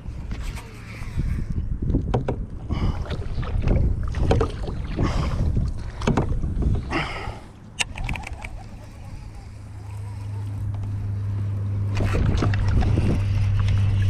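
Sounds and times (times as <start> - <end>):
wind rumbling on microphone: 0.0 - 14.0
water slapping against kayak hull: 1.9 - 6.9, 11.9 - 14.0
sharp clicks: 7.8 - 8.6.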